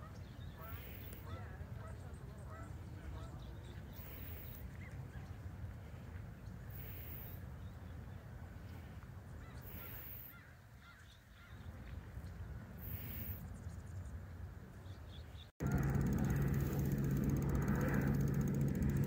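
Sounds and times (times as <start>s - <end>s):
bird calling: 0.0s - 4.6s, 9.4s - 11.6s
steady low rumble: 15.6s - 19.0s.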